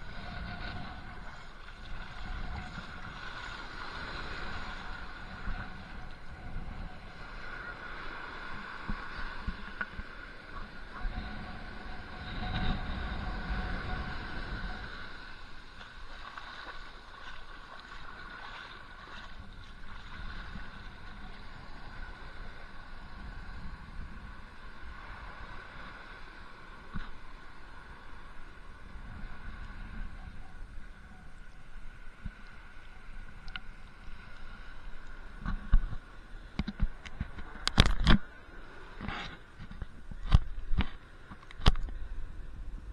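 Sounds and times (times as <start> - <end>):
seawater sloshing and lapping: 15.7 - 21.6.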